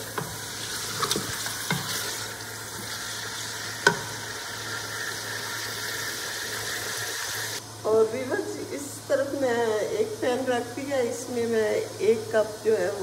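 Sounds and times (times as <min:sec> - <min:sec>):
meat sizzling in hot oil: 0:00.0 - 0:07.6.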